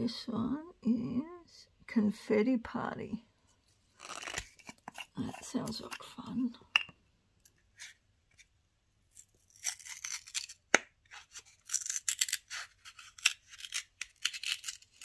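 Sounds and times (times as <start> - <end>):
seal tearing: 4.0 - 4.8, 9.2 - 15.0.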